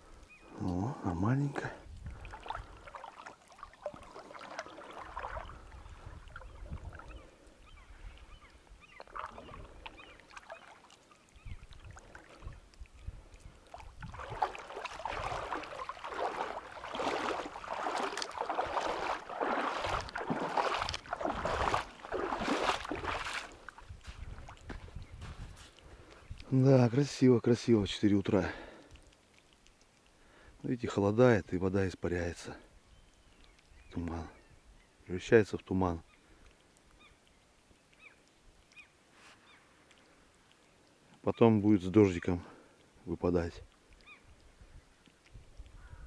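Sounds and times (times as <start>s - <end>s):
water sloshing and splashing: 1.2s - 31.2s.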